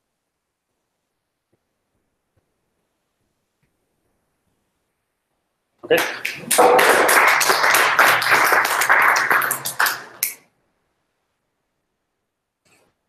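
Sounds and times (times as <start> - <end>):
people clapping: 5.9 - 10.4.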